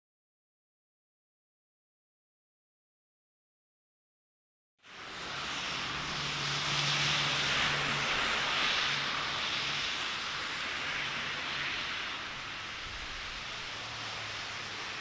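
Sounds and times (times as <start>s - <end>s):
traffic hiss: 4.8s - 15.0s.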